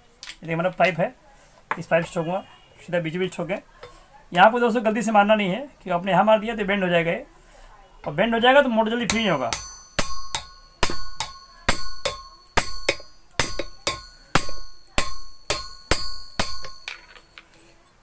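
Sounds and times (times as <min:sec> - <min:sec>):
metal pipe striking metal: 0:09.0 - 0:17.4.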